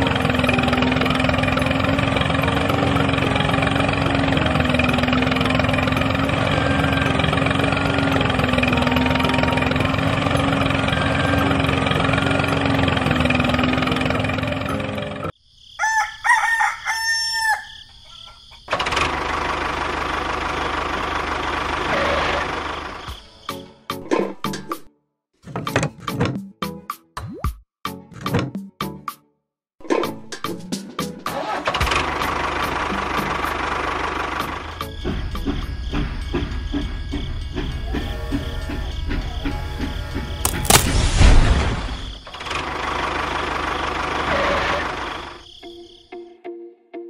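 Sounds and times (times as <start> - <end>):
rooster crowing: 15.7 - 18.4.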